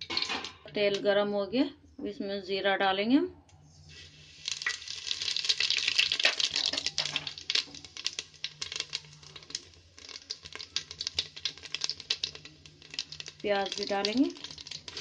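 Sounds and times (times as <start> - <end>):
seeds crackling in hot oil: 3.8 - 15.0.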